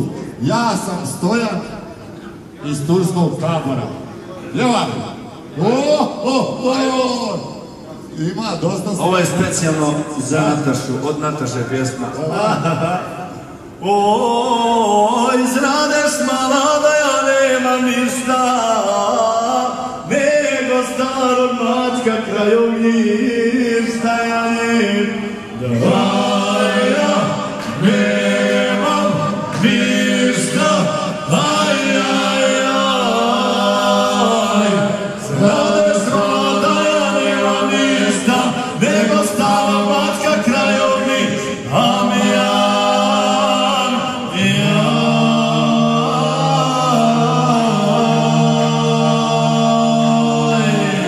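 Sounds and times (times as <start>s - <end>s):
men singing through a pa: 12.7s - 51.0s.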